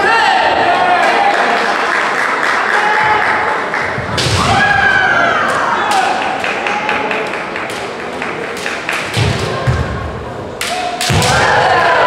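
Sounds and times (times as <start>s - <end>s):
bamboo swords clacking: 10.6s - 11.4s.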